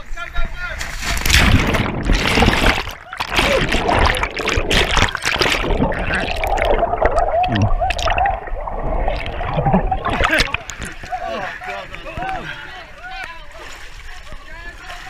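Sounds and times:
ice water splashing and gurgling: 0:00.8 - 0:12.4.

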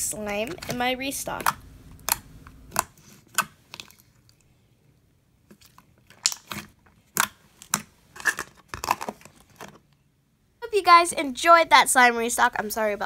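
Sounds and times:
slime wet clicks and pops: 0:06.2 - 0:06.6.

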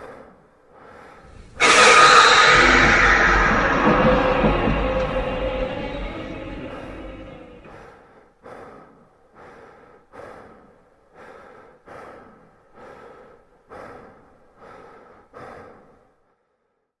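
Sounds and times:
person breathing heavily: 0:00.0 - 0:01.6, 0:07.7 - 0:16.3.

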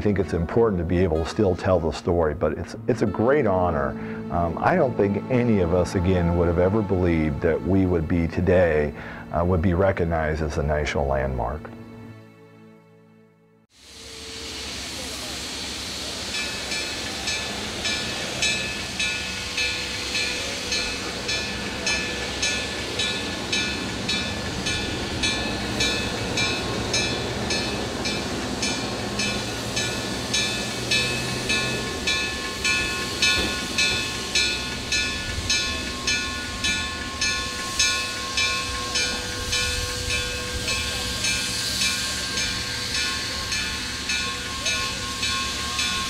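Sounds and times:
steam hissing: 0:13.7 - 0:46.0
steam locomotive chuffing: 0:13.8 - 0:46.0.

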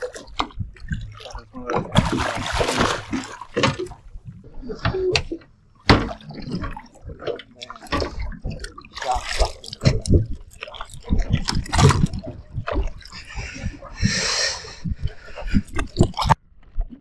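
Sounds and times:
water splashing: 0:00.0 - 0:16.9
fish thrashing at surface: 0:01.9 - 0:04.0, 0:07.9 - 0:13.0.

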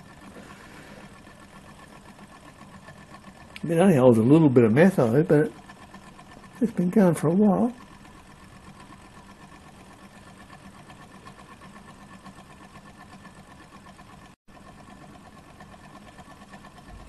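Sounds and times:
small engine light clatter: 0:00.0 - 0:17.0.

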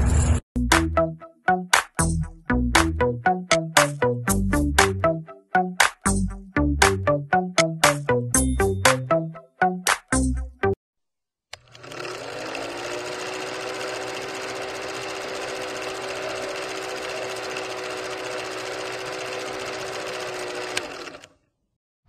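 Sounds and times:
film projector whirring: 0:11.6 - 0:21.4.

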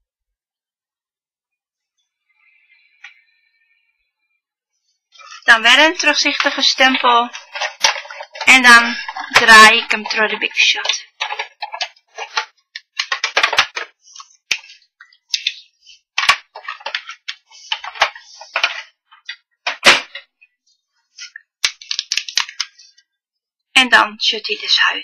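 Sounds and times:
plastic plates handled: 0:05.2 - 0:23.0.

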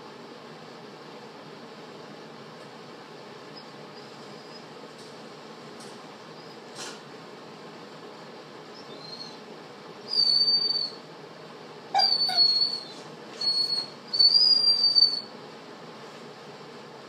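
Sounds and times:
dog whining: 0:03.5 - 0:04.8, 0:08.7 - 0:11.0, 0:11.9 - 0:15.3.

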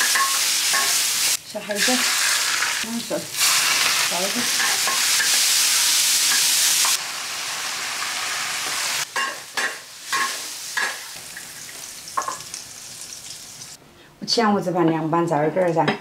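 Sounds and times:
food sizzling in a wok: 0:00.0 - 0:13.8.

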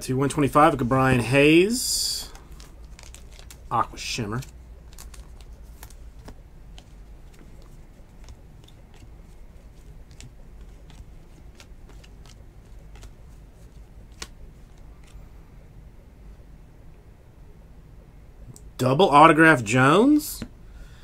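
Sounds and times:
low steady hum: 0:00.0 - 0:21.0
cards being flipped: 0:02.3 - 0:15.2.

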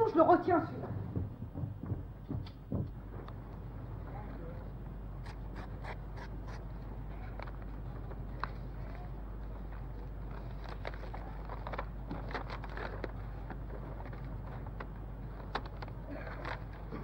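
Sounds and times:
low hum: 0:00.0 - 0:17.0
paper rustling: 0:05.2 - 0:17.0.

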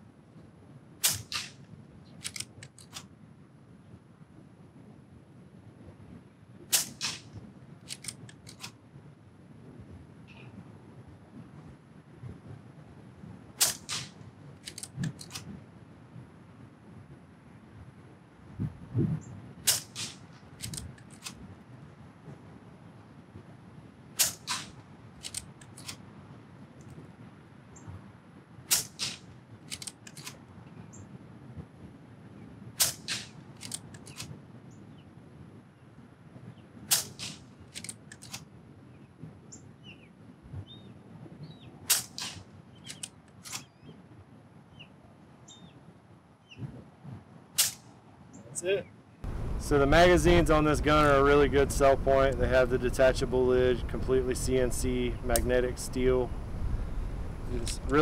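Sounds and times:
air rifle shot crack: 0:01.0 - 0:01.6, 0:06.7 - 0:07.3, 0:13.6 - 0:14.2, 0:19.6 - 0:20.3, 0:24.2 - 0:24.8, 0:28.7 - 0:29.3, 0:32.8 - 0:33.4, 0:36.9 - 0:37.5, 0:41.9 - 0:42.5
light clicks: 0:02.2 - 0:03.1
rifle mechanism clicks: 0:02.2 - 0:03.1, 0:07.8 - 0:08.8, 0:13.6 - 0:15.5, 0:19.7 - 0:21.4, 0:24.2 - 0:26.0, 0:28.7 - 0:30.4, 0:32.8 - 0:34.3, 0:36.9 - 0:38.4, 0:41.9 - 0:43.7, 0:57.6 - 0:58.0.

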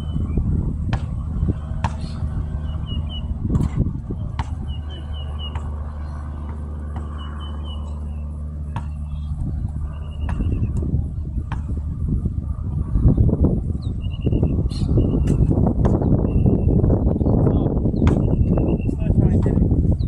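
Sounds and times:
birds chirping: 0:00.0 - 0:20.0
steady low hum: 0:00.0 - 0:20.0
basketball bouncing on court: 0:00.9 - 0:02.7, 0:03.5 - 0:08.0, 0:08.7 - 0:09.1, 0:10.2 - 0:10.8, 0:11.4 - 0:11.8, 0:15.2 - 0:16.1, 0:17.5 - 0:18.4.

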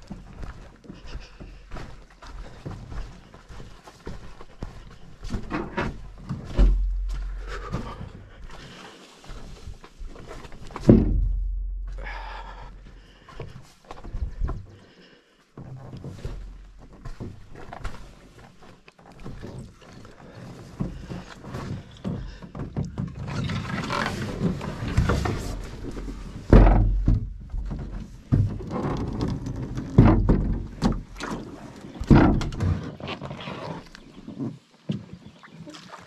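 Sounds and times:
hollow thuds and knocks of canoe: 0:04.2 - 0:08.8, 0:09.4 - 0:14.9, 0:19.0 - 0:33.3, 0:34.1 - 0:35.8
heavy thumps on hull: 0:10.8 - 0:12.7, 0:26.4 - 0:29.2, 0:32.0 - 0:32.6.

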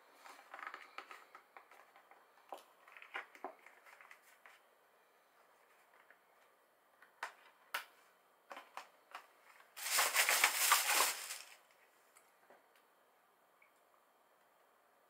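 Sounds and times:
plastic packaging crinkling: 0:09.8 - 0:11.7.

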